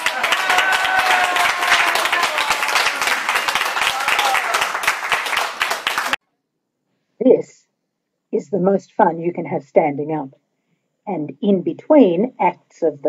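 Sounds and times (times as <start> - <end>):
voices calling out: 0.0 - 4.8
people applauding: 0.0 - 6.2.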